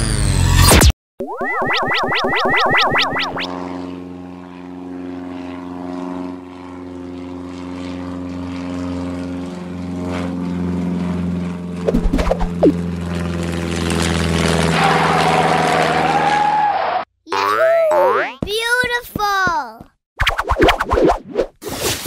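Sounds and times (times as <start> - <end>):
cartoon propeller airplane drone: 0.0 - 18.5
short squeaky blips: 11.9 - 12.8.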